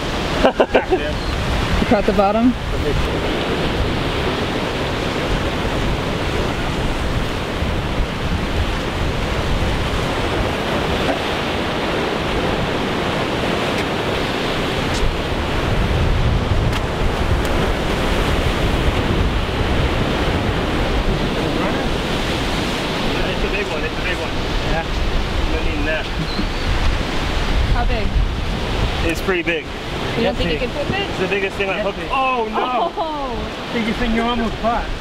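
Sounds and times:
wind buffeting microphone: 0:00.0 - 0:35.0
surf breaking against pilings: 0:03.0 - 0:27.5.

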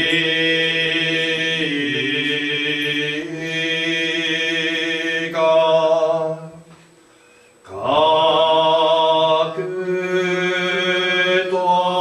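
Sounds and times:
man chanting: 0:00.0 - 0:06.6, 0:07.7 - 0:12.0.

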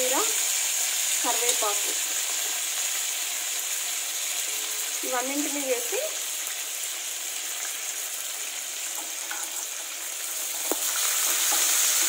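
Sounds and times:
leaves sizzling in hot oil: 0:00.0 - 0:12.0
metal spatula stirring: 0:08.8 - 0:12.0.

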